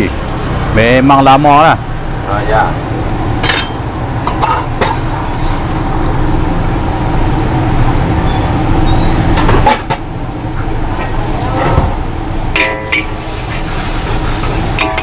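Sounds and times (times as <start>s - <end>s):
gas burner roaring: 0.0s - 15.0s
metal ladle clinking pots: 12.5s - 13.2s, 14.8s - 15.0s.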